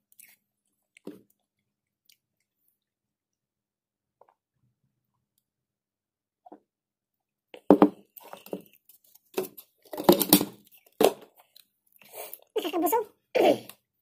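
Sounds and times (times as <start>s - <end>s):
crinkling handling noises: 8.2s - 11.7s.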